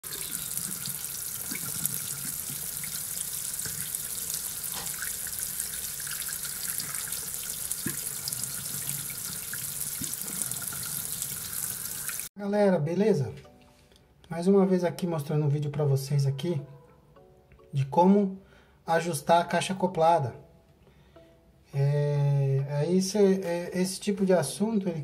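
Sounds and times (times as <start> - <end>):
running water: 0.0 - 12.3.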